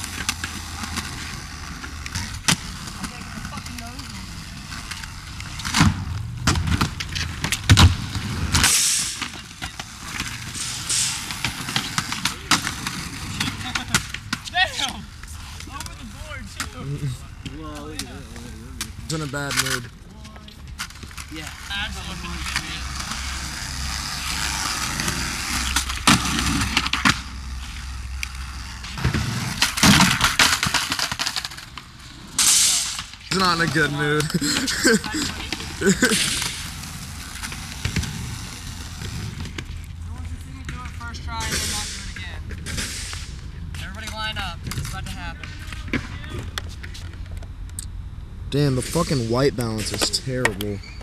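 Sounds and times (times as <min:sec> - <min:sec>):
skateboard wheels rolling on concrete: 0:00.0 - 0:51.0
skateboard clacking on ground: 0:28.2 - 0:39.7.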